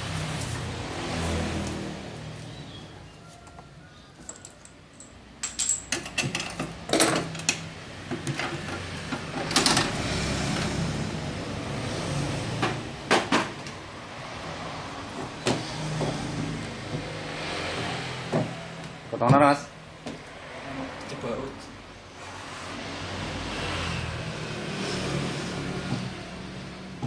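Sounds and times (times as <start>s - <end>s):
metal tools clattering: 4.2s - 7.4s.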